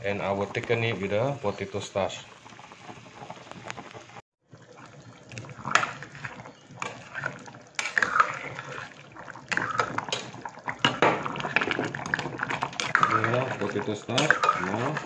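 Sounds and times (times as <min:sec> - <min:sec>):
liquid bubbling in a saucepan: 0:00.0 - 0:15.0
ladle knocking and scraping pot: 0:05.6 - 0:15.0.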